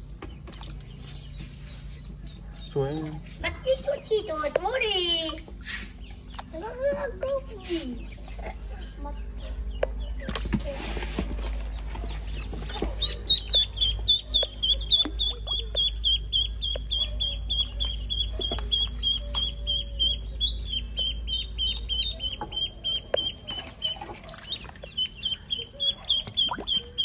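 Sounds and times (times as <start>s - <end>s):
duckling peeping: 11.7s - 27.0s.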